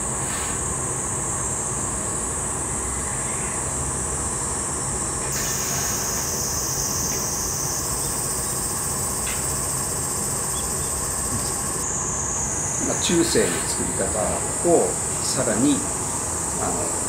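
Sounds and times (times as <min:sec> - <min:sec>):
burner and blower hum: 0:03.7 - 0:17.0
high steady hiss: 0:04.3 - 0:17.0.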